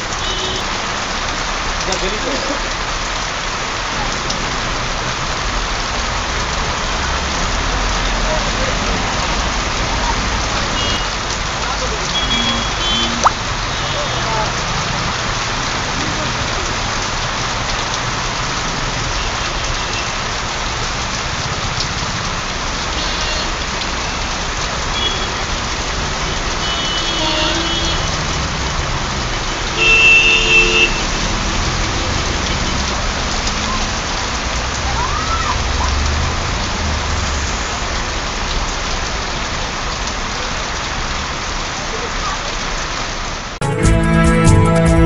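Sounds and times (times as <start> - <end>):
low rumble of traffic: 0.0 - 43.6
heavy rain pouring: 0.0 - 45.0
vehicle horns: 0.1 - 0.8, 10.7 - 11.2, 12.0 - 14.3, 22.9 - 24.3, 24.9 - 25.6, 26.2 - 28.4, 29.4 - 31.5.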